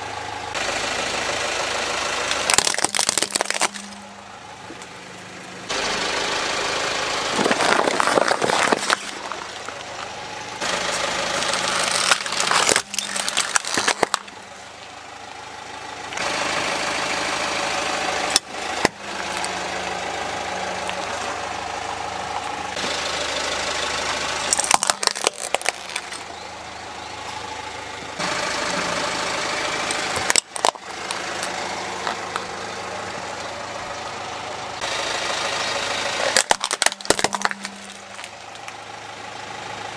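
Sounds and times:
car engine running: 0.0 - 39.9
plastic toys cracking and crunching: 2.3 - 4.1, 7.3 - 14.5, 24.4 - 26.4, 29.9 - 32.5, 36.2 - 38.8.

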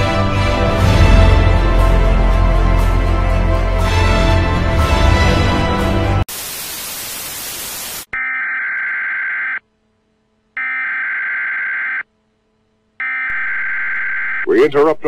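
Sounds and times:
television static hiss: 6.3 - 8.1
emergency alert tone beeps: 13.0 - 14.5.

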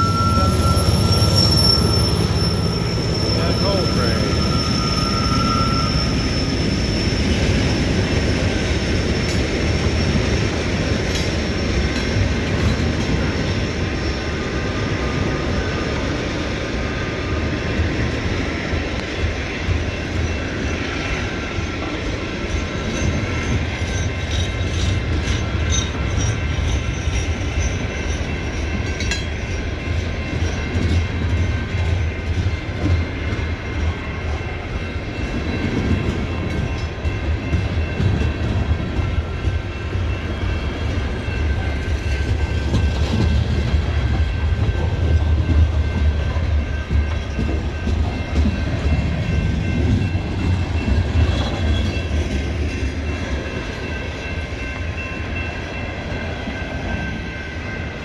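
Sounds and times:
high wheel squeal: 0.0 - 10.6
train wheels rumbling on rail: 0.0 - 58.0.

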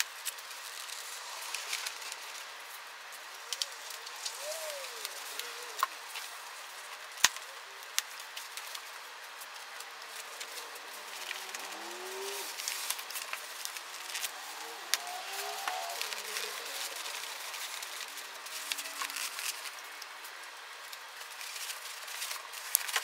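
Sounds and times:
paper jackets rustling and crinkling: 0.0 - 23.0
faint low cooing: 3.4 - 7.9, 10.0 - 19.6
adhesive strips peeling: 9.5 - 20.1.

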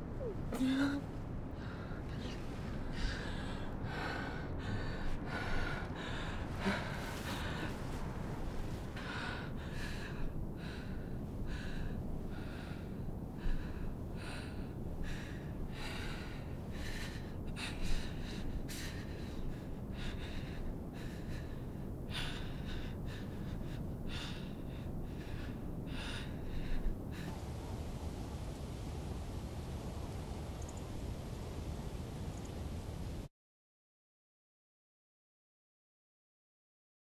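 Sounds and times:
low steady hiss: 0.0 - 33.3
woman breathing heavily: 0.2 - 27.4.

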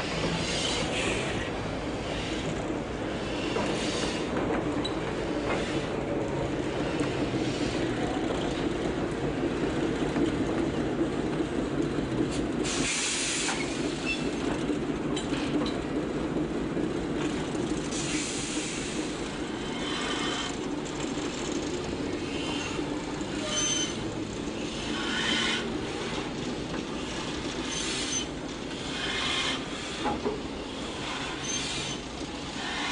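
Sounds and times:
steam locomotive rumble and grind: 0.0 - 32.9
steam hiss bursts: 12.6 - 13.9, 17.9 - 19.2
faint metallic squeals: 23.4 - 24.0.

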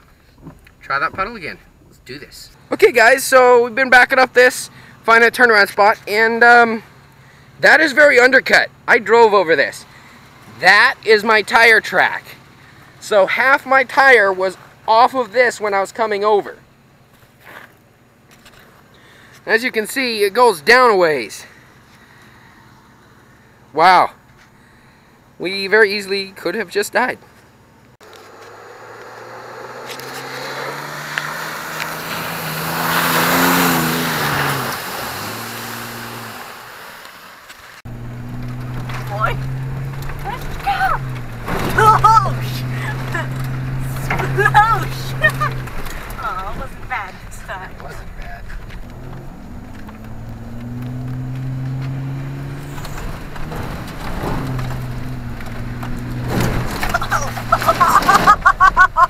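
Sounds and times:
truck engine running: 37.8 - 59.0.

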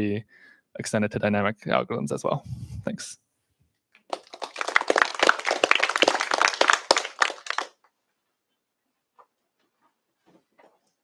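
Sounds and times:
audience applauding: 4.1 - 7.8.

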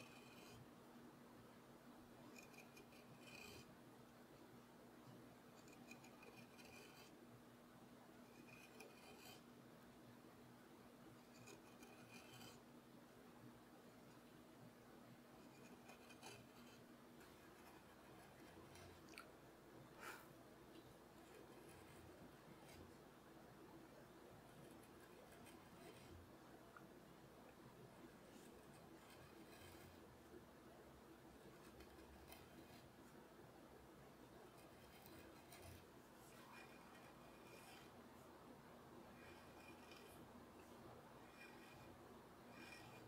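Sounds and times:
carving tool scraping wood: 0.0 - 0.7, 2.3 - 3.7, 5.5 - 7.2, 8.2 - 9.5, 11.2 - 12.6, 15.4 - 19.1, 20.0 - 23.0, 24.5 - 26.3, 28.2 - 30.1, 31.4 - 33.0, 34.4 - 38.0, 39.2 - 40.3, 41.2 - 43.0
faint low hum: 0.0 - 43.0.

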